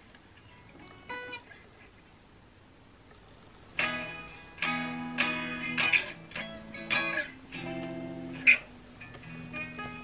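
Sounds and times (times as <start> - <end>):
guitar chords strummed: 0.4 - 1.6, 3.8 - 10.0.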